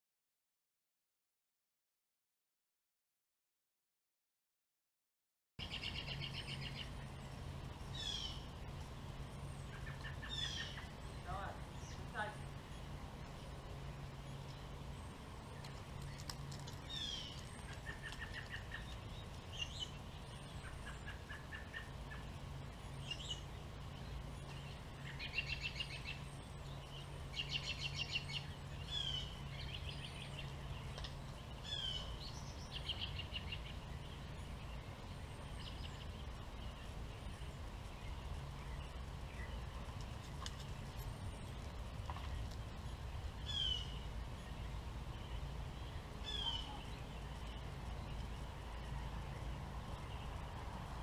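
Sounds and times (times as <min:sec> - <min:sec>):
robins chirping and chattering: 0:05.6 - 0:51.0
steady low hum: 0:05.6 - 0:51.0.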